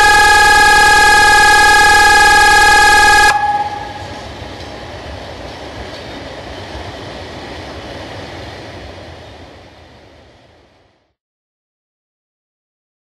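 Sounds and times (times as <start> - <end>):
electronic siren tone: 0.0 - 4.2
freight train rumbling past: 3.3 - 11.0.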